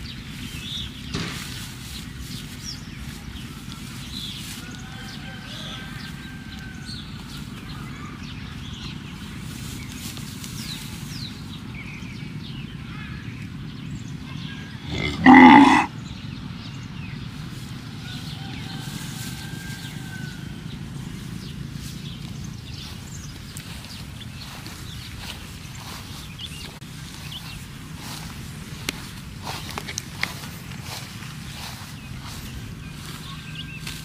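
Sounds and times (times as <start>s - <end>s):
cow mooing: 14.8s - 15.9s.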